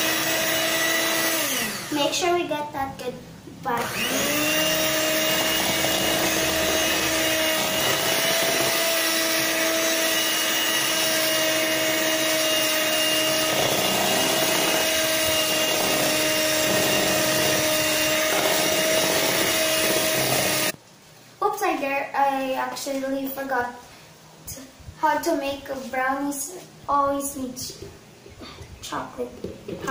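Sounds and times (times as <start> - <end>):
electric hand mixer whirring: 0.0 - 2.2, 3.7 - 20.8.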